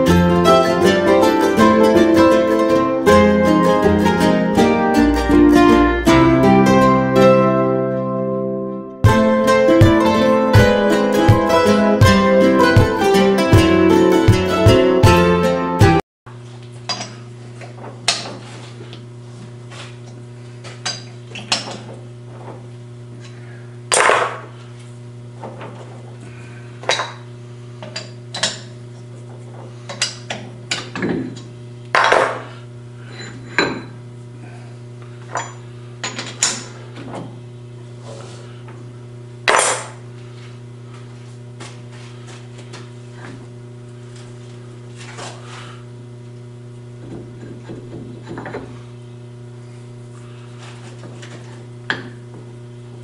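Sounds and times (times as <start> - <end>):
steady low hum: 16.4 - 53.0.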